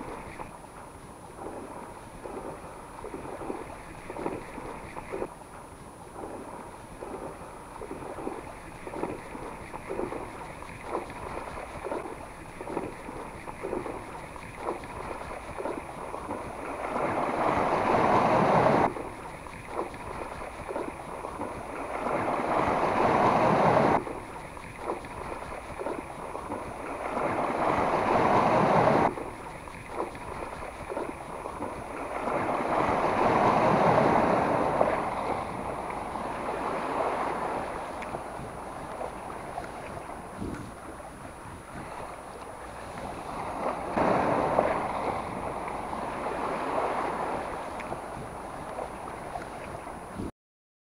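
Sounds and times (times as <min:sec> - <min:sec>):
sea waves washing on shore: 0:00.0 - 0:50.3.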